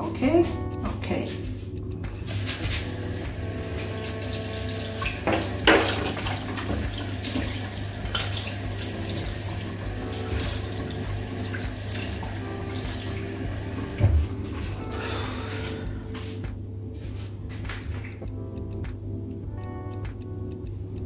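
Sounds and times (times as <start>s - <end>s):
tap running into sink: 2.4s - 14.6s.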